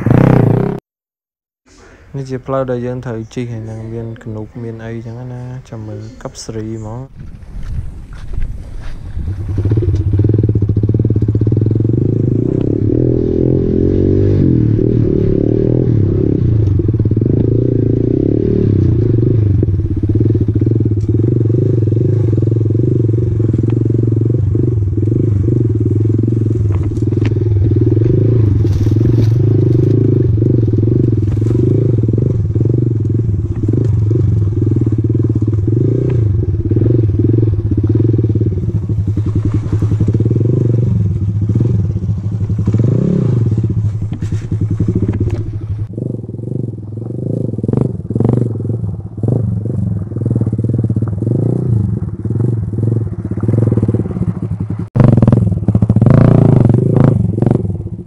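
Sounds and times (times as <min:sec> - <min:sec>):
motorcycle engine revving: 0:00.0 - 0:00.8, 0:07.6 - 0:58.0
bike rattling over bumps: 0:07.1 - 0:58.0.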